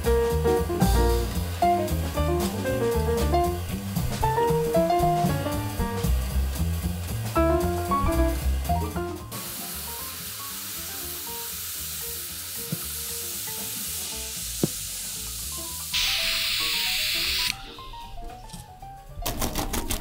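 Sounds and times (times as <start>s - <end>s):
blowtorch hissing: 0.1s - 18.2s
soft background music: 12.4s - 20.0s.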